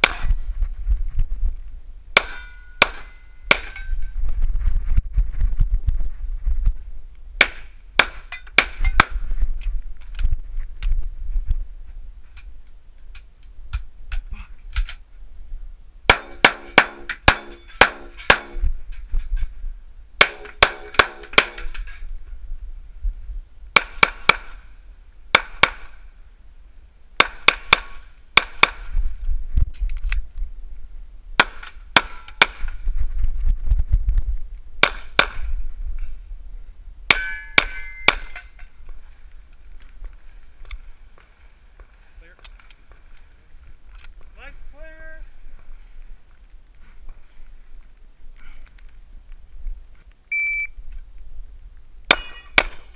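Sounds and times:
steel plates ringing: 2.2 - 4.0, 16.1 - 18.6, 20.2 - 21.9, 37.1 - 38.7, 52.1 - 52.8.

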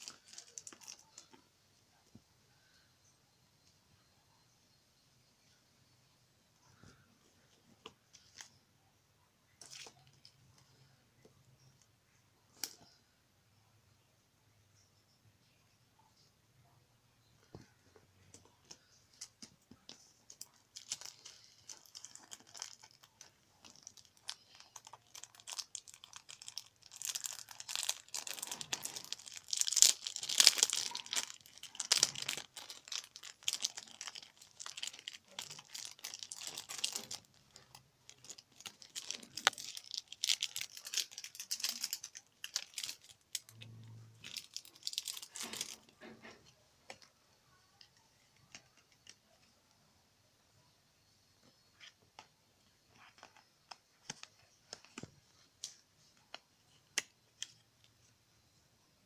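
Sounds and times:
plastic packaging crinkling: 0.0 - 1.4, 9.6 - 10.4, 18.4 - 47.1.

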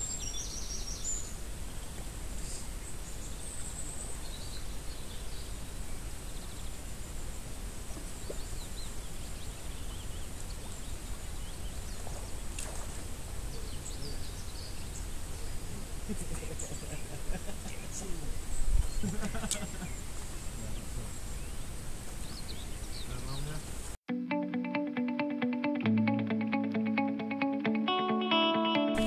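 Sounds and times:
bird chirps: 0.0 - 6.6.

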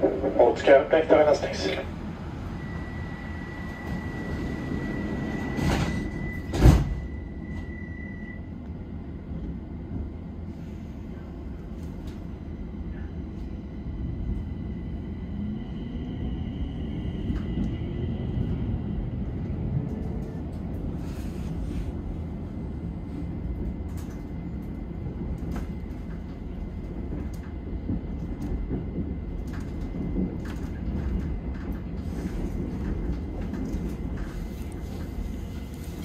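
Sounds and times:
train doors closing with knocks: 3.6 - 8.1.

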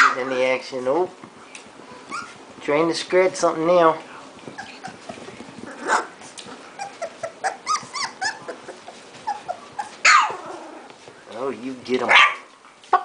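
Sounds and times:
puppies whimpering and squeaking: 1.9 - 2.7, 4.3 - 11.1.

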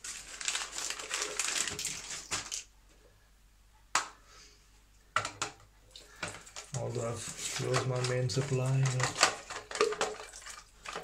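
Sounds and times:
rustling crinkling handling noise: 0.0 - 2.7, 5.9 - 11.0.

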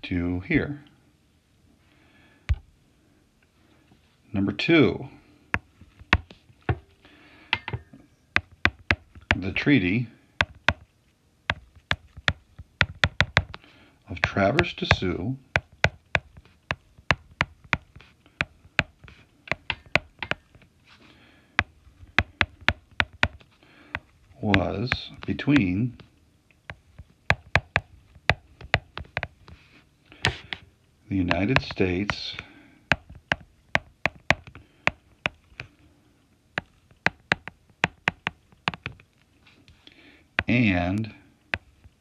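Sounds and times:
stylus tapping on glass screen: 7.5 - 9.5, 10.4 - 10.9, 11.5 - 13.6, 15.6 - 20.6, 21.6 - 25.7, 26.7 - 29.4, 31.3 - 35.7, 36.6 - 39.0.

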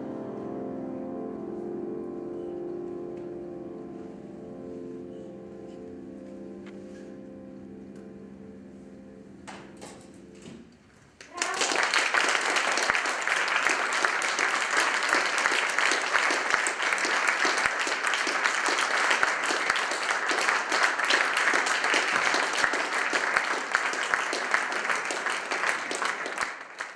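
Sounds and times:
audience applauding: 11.2 - 26.9.

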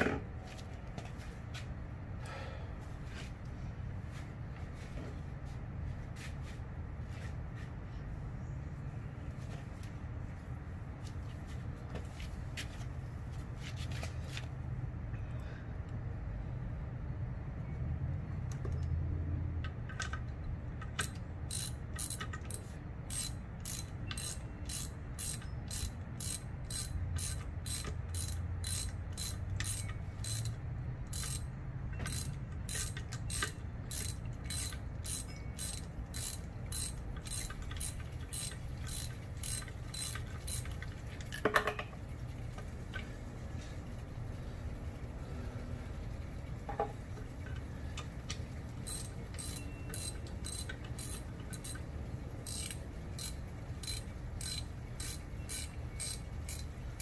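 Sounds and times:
ratchet wrench clicking: 19.6 - 41.9, 48.8 - 57.0.

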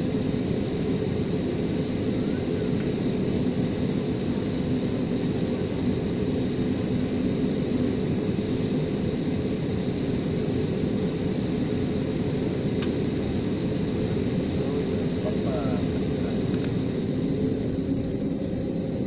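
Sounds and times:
jet engine low hum: 0.0 - 19.0.

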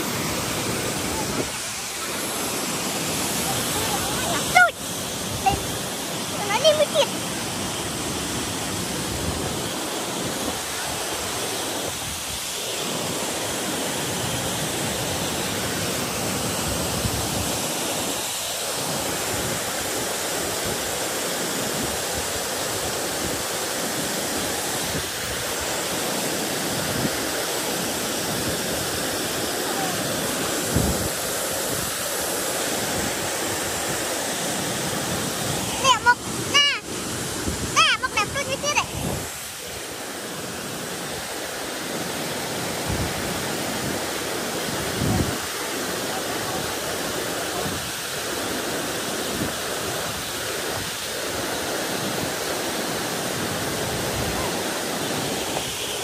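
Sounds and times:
steady rushing noise: 0.0 - 19.8, 24.4 - 47.8.

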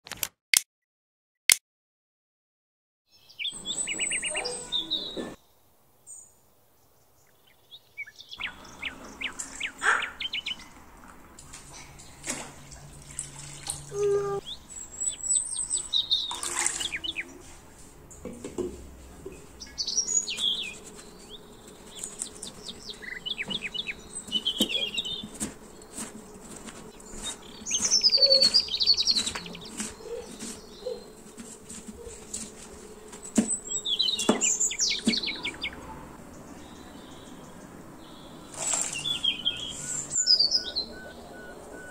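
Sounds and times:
birds chirping and singing: 3.1 - 5.5, 7.2 - 10.8, 13.8 - 17.5, 19.3 - 41.9
water poured into a pot: 12.2 - 13.9, 16.2 - 17.2.

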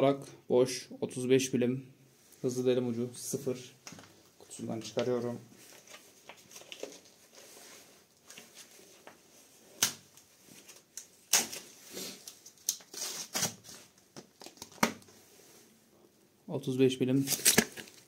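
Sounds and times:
packaging rustling: 3.8 - 9.2, 10.0 - 15.2, 17.2 - 18.0.

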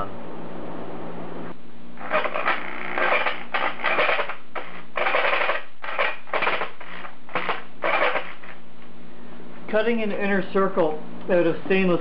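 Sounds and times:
jigsaw cutting steel sheet: 2.0 - 8.6.

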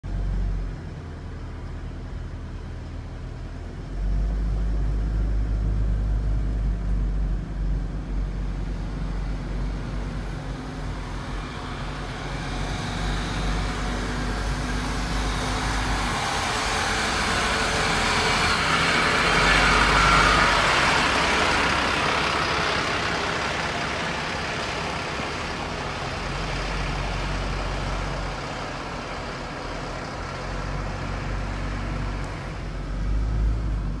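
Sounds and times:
car engine and road rumble: 0.0 - 34.0.

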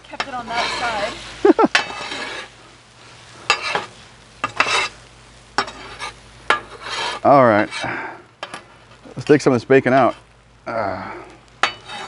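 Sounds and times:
metal spatulas scraping griddle: 0.0 - 2.6, 3.4 - 5.0, 5.6 - 8.7, 11.6 - 12.0
eggs sizzling: 0.0 - 12.0.

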